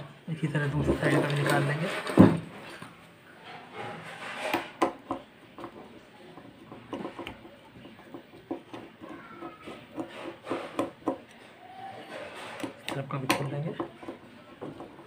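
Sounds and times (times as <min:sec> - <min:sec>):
metal and plastic parts knocking: 0:12.3 - 0:15.0.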